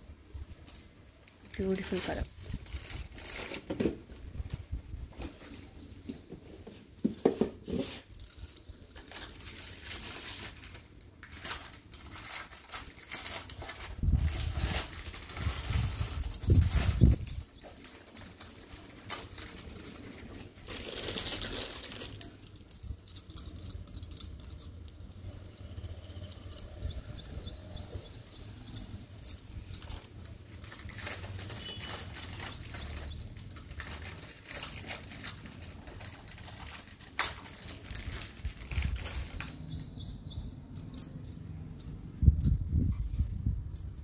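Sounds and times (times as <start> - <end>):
glass bangles clinking: 6.8 - 10.6, 12.8 - 42.6, 43.6 - 44.0.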